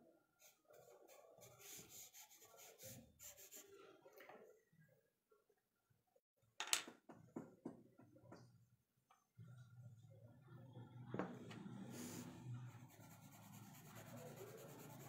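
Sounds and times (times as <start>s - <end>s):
charcoal pencil scratching on paper: 0.4s - 3.7s, 11.8s - 15.0s.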